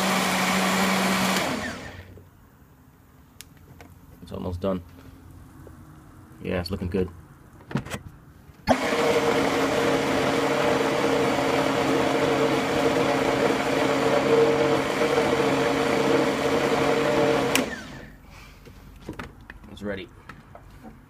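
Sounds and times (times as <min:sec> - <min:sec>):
blender motor running: 0:00.0 - 0:02.1, 0:08.7 - 0:18.1
blender switch click: 0:17.5 - 0:17.8.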